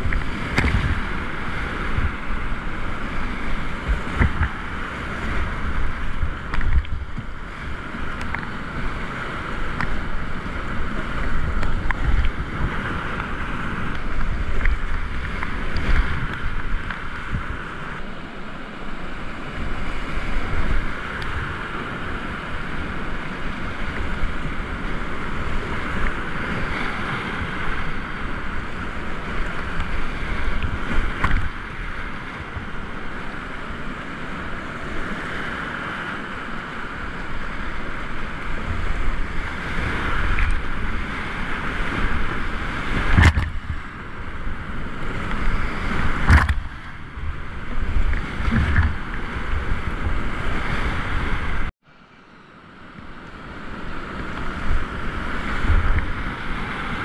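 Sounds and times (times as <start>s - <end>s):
rapids rushing: 0.0s - 51.7s
water splashing on microphone: 34.5s - 51.7s.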